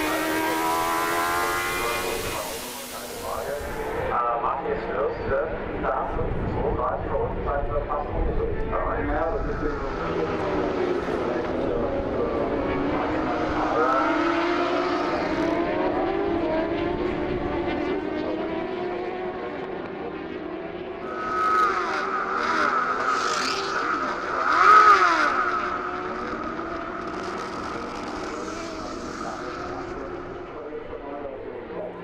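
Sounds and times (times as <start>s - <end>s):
superbike engine at high revs: 0.0s - 4.0s, 9.4s - 30.8s.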